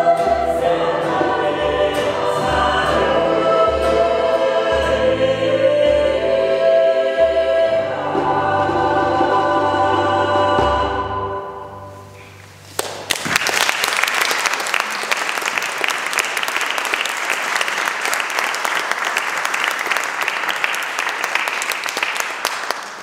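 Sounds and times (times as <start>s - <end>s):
audience applauding: 12.8s - 23.0s.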